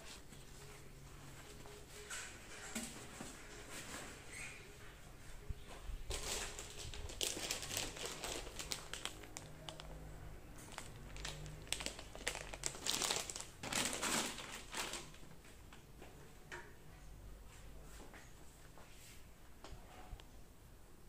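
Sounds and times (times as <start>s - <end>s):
crinkling and rustling: 0.0s - 16.1s.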